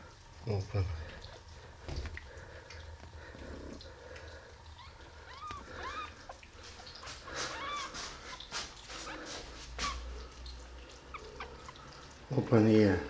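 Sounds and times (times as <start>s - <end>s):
kitten mewing: 4.8s - 6.4s, 7.1s - 10.2s.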